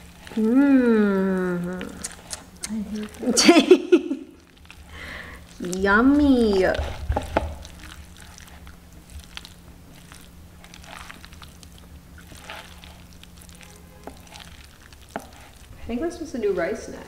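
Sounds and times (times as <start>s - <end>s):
faint steady hum: 0.0s - 17.0s
spatula squelching and scraping: 0.0s - 17.0s.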